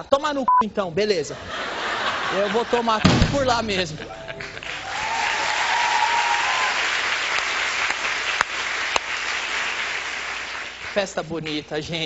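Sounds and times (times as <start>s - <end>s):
audience applauding: 4.2s - 11.7s.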